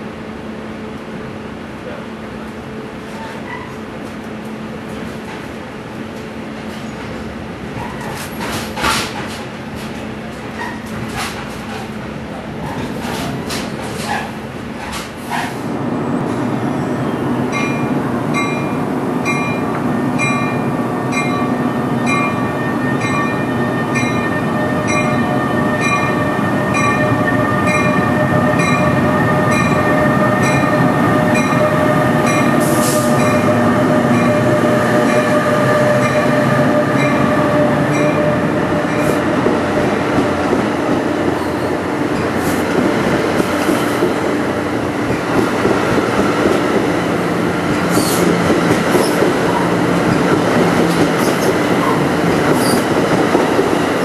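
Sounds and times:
train wheels rumbling: 1.8 - 54.0
locomotive bell ringing: 17.5 - 39.2.

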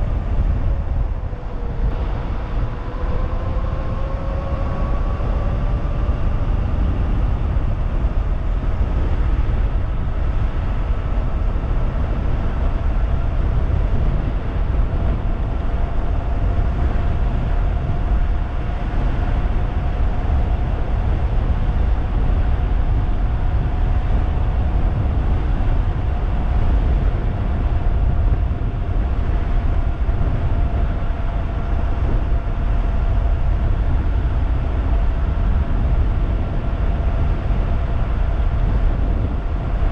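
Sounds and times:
wind rushing over microphone: 0.0 - 39.9
electric motor whine: 0.1 - 21.3.

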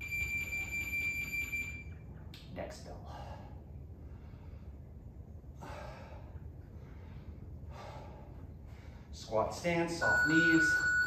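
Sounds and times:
steady low hum: 0.0 - 11.0
man breathing hard: 3.0 - 9.2.

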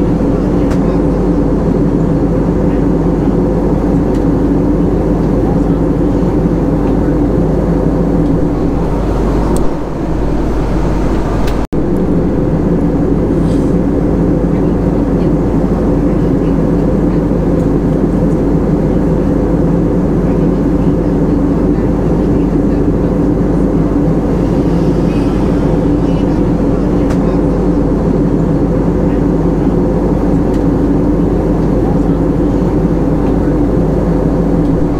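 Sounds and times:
jet engine hum: 0.0 - 34.9
rushing airflow: 5.8 - 18.8, 22.0 - 34.9.

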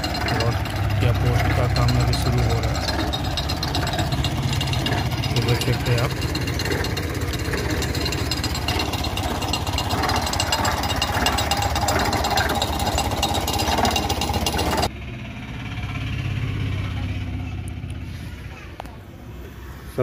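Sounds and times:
winch engine knocking: 0.0 - 14.9.

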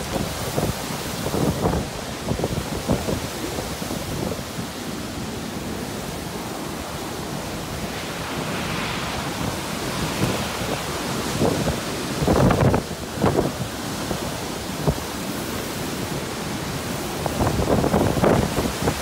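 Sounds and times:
roaring wind and heavy rain: 0.0 - 19.0
wind buffeting microphone: 0.0 - 19.0.

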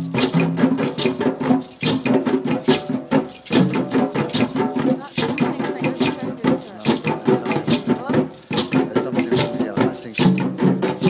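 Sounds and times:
djembe drumming: 0.0 - 11.0.

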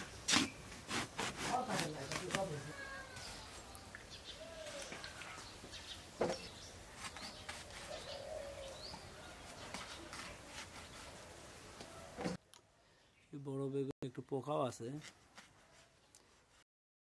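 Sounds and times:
knife slicing eggplant: 0.3 - 2.6
birds calling: 2.5 - 12.4.

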